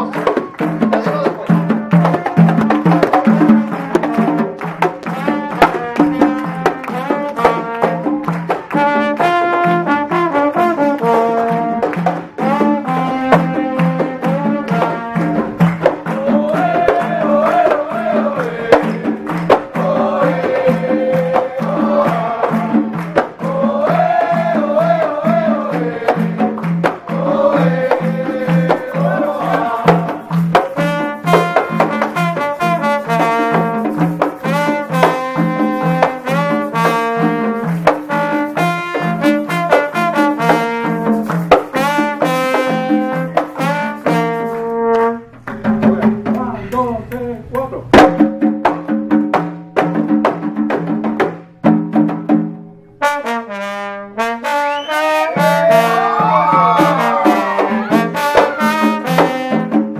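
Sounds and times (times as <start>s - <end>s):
hand frame drums beating: 0.0s - 52.8s, 55.0s - 59.9s
trombone: 1.7s - 46.7s, 51.6s - 59.9s
voices singing: 12.4s - 32.4s, 54.8s - 59.7s.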